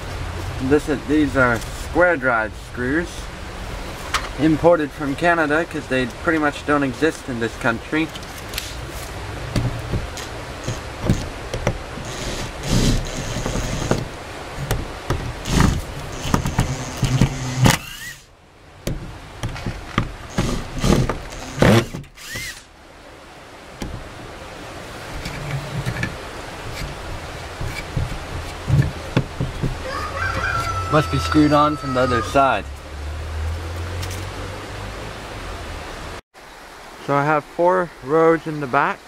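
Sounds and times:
knocks on wood: 9.5 - 17.4, 18.8 - 22.0, 27.6 - 30.5
cordless drill whirring in bursts: 12.0 - 13.9, 15.4 - 18.3, 20.3 - 22.7.

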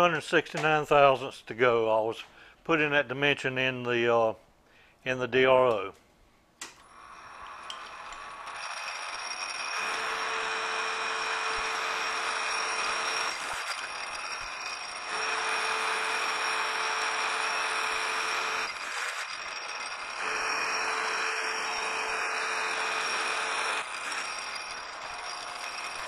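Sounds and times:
motor whine: 6.8 - 26.0.

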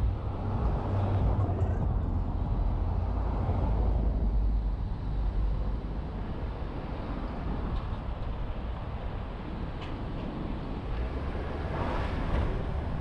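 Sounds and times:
car road and wind noise: 0.0 - 13.0.

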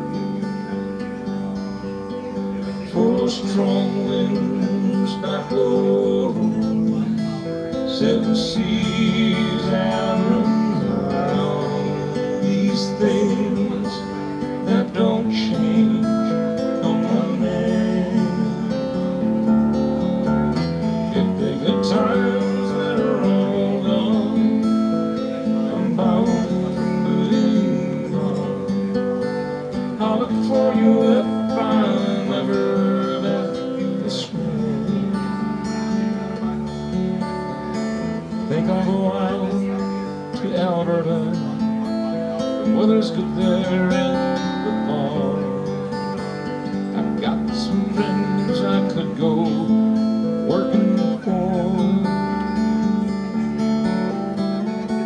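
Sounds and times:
acoustic guitar: 0.0 - 55.0
man singing: 2.5 - 19.8, 21.0 - 36.7, 38.2 - 53.3.

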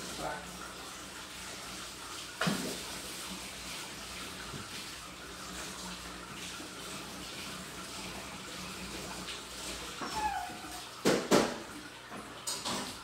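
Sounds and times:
aquarium filter running water: 0.0 - 13.0.

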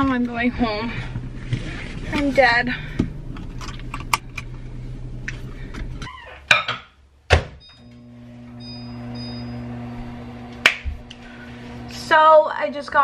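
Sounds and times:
microwave oven humming: 0.0 - 13.0
door shutting thunk: 7.3 - 7.7.

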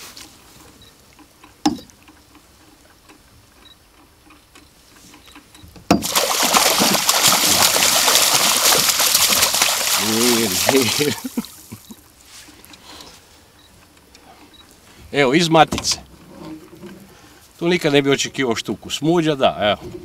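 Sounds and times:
fish thrashing and splashing in net: 6.0 - 11.6.

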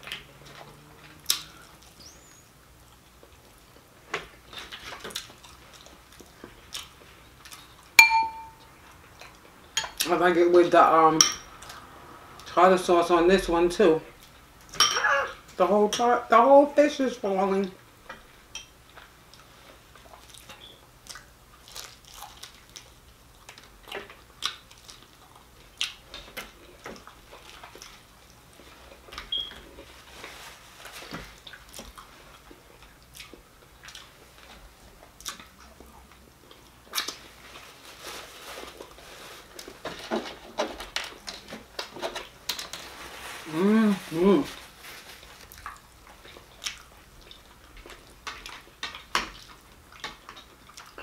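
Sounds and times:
crunchy chewing: 19.0 - 39.8, 44.5 - 51.0.

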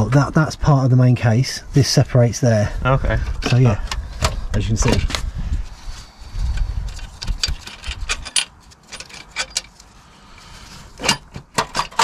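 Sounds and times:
metallic clinks and knocks: 6.9 - 9.8, 11.0 - 12.0.

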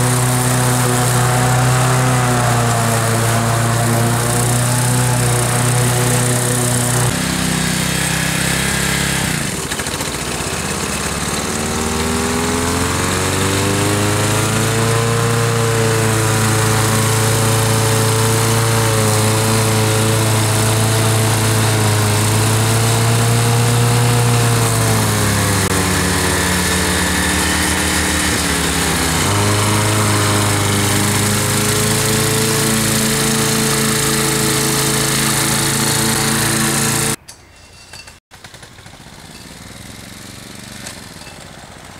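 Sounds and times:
ride-on lawn mower engine: 0.0 - 37.2, 38.4 - 41.9.

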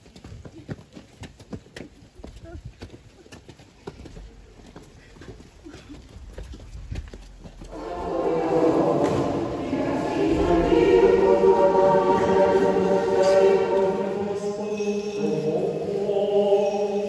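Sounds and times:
choir singing held chords: 7.6 - 17.0.

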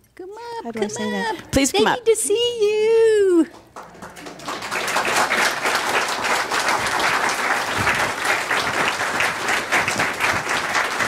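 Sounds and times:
congregation applauding: 3.4 - 11.0.

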